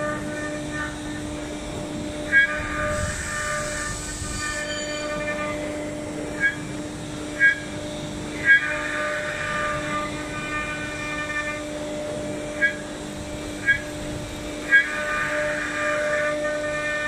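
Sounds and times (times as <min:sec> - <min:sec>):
router spindle humming: 0:00.0 - 0:17.0
sharp high squeals: 0:02.3 - 0:05.8.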